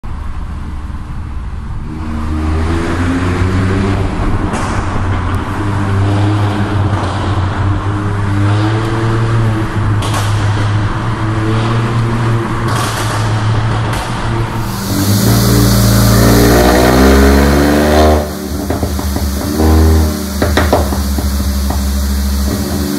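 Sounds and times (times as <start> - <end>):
exhaust cracks: 12.8 - 22.9
car engine accelerating: 14.4 - 22.9.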